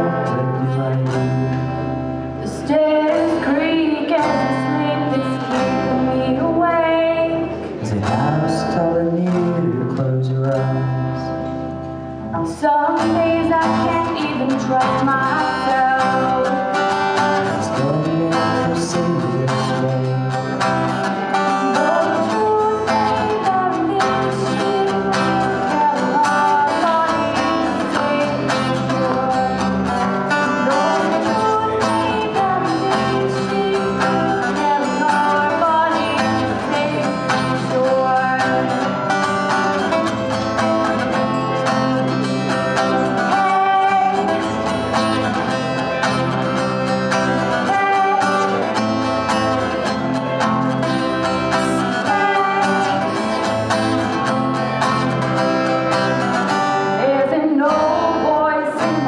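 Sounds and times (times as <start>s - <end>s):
acoustic guitar strumming: 0.0s - 59.0s
woman singing: 2.4s - 7.8s, 12.3s - 20.2s, 20.8s - 59.0s.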